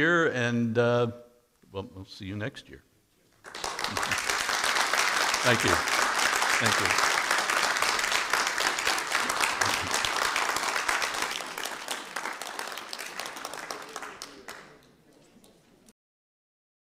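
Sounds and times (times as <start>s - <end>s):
audience applauding: 3.4s - 15.7s.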